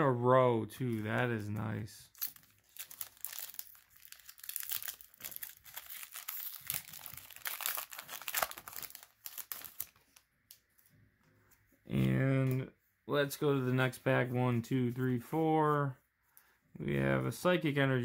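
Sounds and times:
foil wrapper crinkling and tearing: 0:02.1 - 0:10.3.

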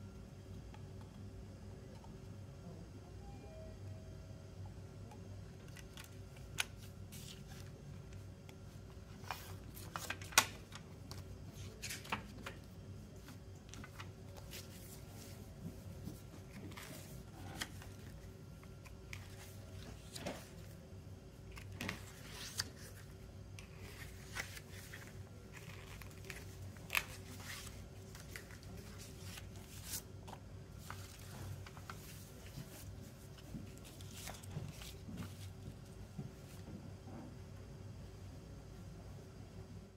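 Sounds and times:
paper rustling: 0:21.5 - 0:35.5.

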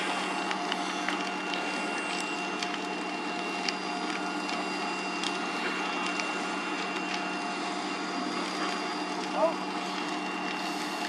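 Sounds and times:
fire engine pumps droning: 0:00.0 - 0:11.0
sharp cracks of burning: 0:00.0 - 0:11.0.

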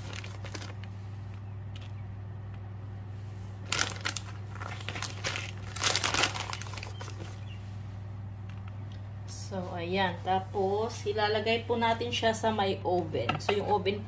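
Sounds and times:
baking paper crinkling: 0:00.0 - 0:02.6, 0:03.2 - 0:07.9
steady low hum: 0:00.0 - 0:14.0.

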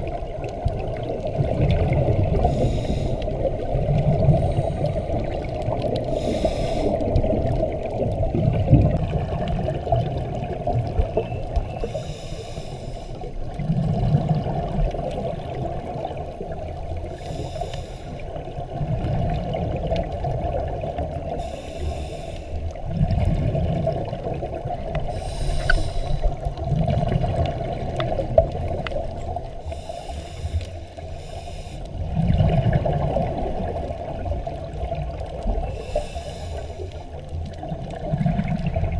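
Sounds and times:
exhaled bubbles burbling: 0:00.0 - 0:11.9, 0:13.4 - 0:17.2, 0:18.2 - 0:21.4, 0:22.7 - 0:29.6, 0:32.0 - 0:35.8, 0:37.3 - 0:38.9
regulator hissing inhale: 0:02.3 - 0:03.6, 0:04.2 - 0:05.4, 0:06.0 - 0:07.2, 0:11.8 - 0:13.3, 0:17.0 - 0:18.4, 0:21.3 - 0:22.7, 0:25.1 - 0:26.5, 0:29.6 - 0:32.0, 0:35.6 - 0:37.2.

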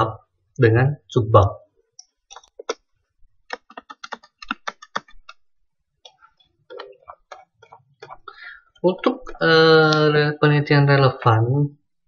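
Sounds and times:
computer keyboard clicks: 0:03.5 - 0:05.4.

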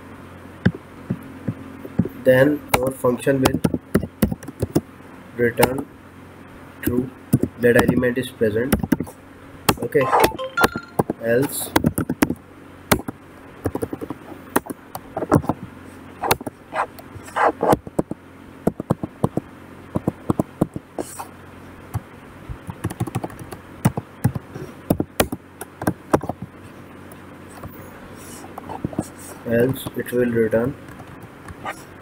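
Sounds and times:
computer keyboard typing: 0:03.5 - 0:04.8, 0:11.8 - 0:15.6, 0:22.6 - 0:26.5.

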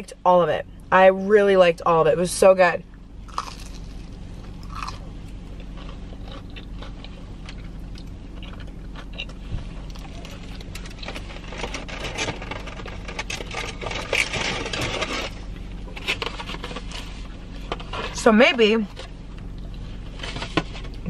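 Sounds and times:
steady low hum: 0:00.0 - 0:21.0
chewing close to microphone: 0:03.3 - 0:04.0, 0:04.6 - 0:05.0, 0:05.6 - 0:11.2.

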